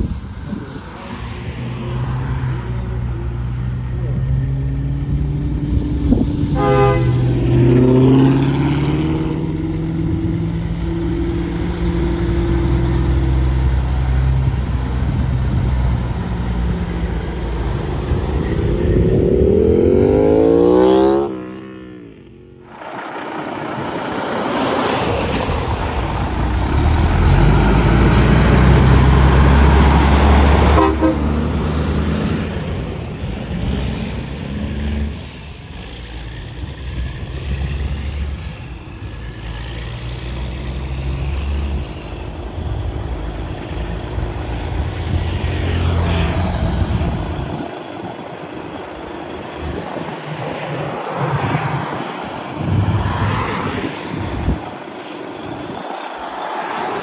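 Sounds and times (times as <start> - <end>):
heavy engine pulling a trailer: 0.0 - 21.0, 21.6 - 53.1
cars passing: 0.0 - 57.0
horn blasts: 6.5 - 7.8, 30.6 - 31.5.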